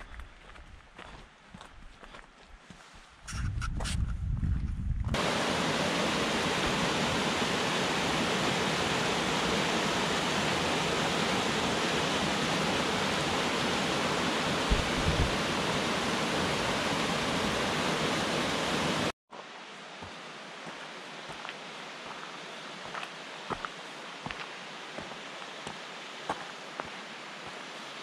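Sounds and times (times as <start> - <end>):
quiet outdoor ambience: 5.2 - 28.0
rushing cascading water: 5.2 - 28.0.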